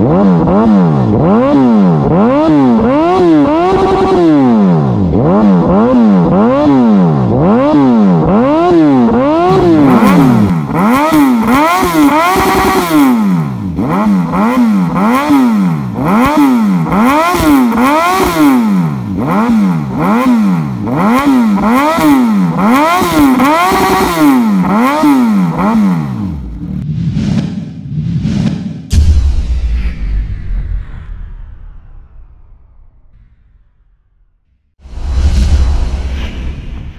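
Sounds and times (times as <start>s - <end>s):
motorcycle engine revving: 0.0s - 29.1s.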